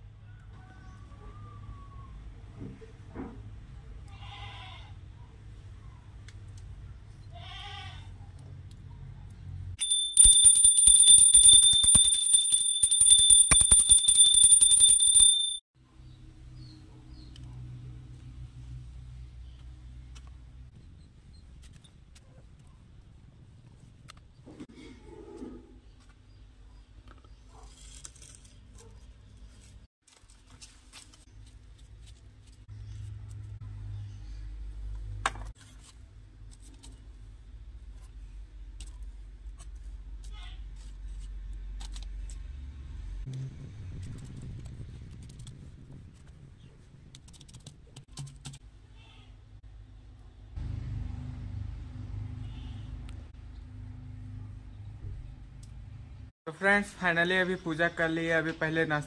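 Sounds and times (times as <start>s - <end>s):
faint animal bleat: 4.1s - 5.0s, 7.3s - 8.2s, 48.9s - 49.4s, 52.4s - 53.0s
brass hand bell ringing rapidly: 9.8s - 15.6s.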